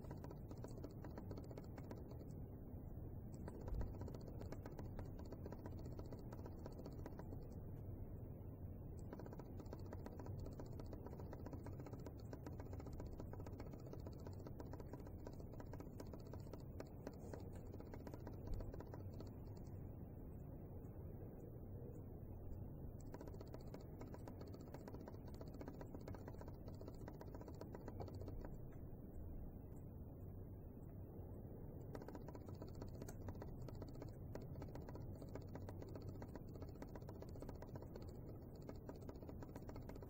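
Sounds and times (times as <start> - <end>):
small motor humming: 0.0 - 2.3, 3.4 - 7.5, 9.0 - 19.7, 23.0 - 28.6, 31.9 - 40.0
light irregular clicking: 0.0 - 2.6, 3.2 - 7.9, 8.8 - 40.0.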